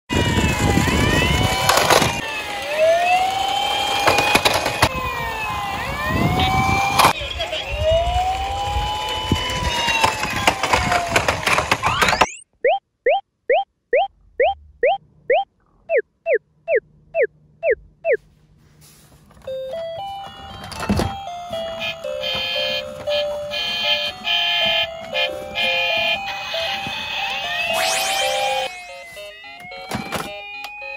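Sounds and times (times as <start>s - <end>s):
toy electronic sirens: 0.1s - 18.2s, 19.5s - 30.9s
plastic toy cars rumbling and knocking: 0.2s - 7.2s, 8.2s - 12.4s
beeping tune of stepped notes: 12.2s - 18.2s.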